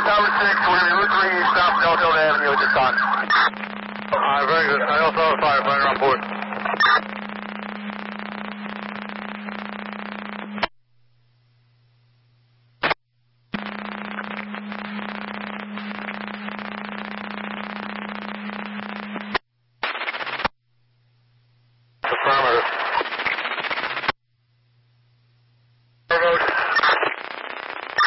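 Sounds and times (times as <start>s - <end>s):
brief bursts of radio noise: 0.0s - 7.2s, 26.1s - 28.0s
radio static hiss: 0.0s - 10.7s, 12.8s - 20.5s, 22.0s - 24.2s, 26.1s - 28.0s
steady low hum: 0.0s - 19.8s.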